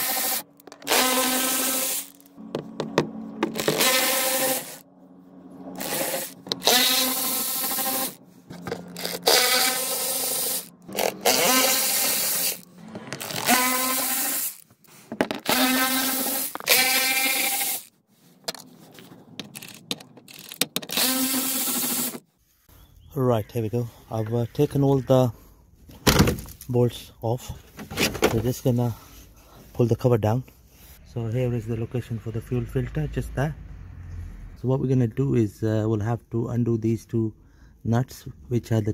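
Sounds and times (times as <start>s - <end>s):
electric ratchet whirring: 0.0s - 2.4s, 3.4s - 4.8s, 5.7s - 14.7s, 15.4s - 17.9s, 19.5s - 22.2s
sharp clicks and knocks: 19.3s - 21.0s.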